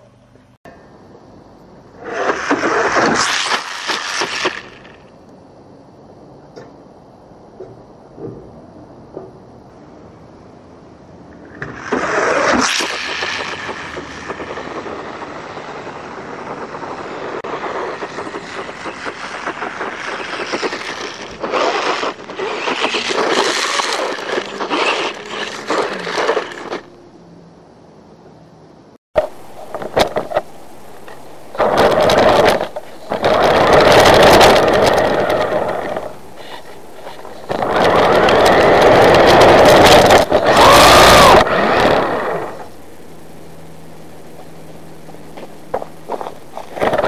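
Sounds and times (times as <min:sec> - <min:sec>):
electric motor and gearbox whine: 0:11.2 - 0:27.2, 0:29.2 - 0:47.0
tyres crunching on gravel: 0:29.2 - 0:43.2, 0:43.8 - 0:47.0.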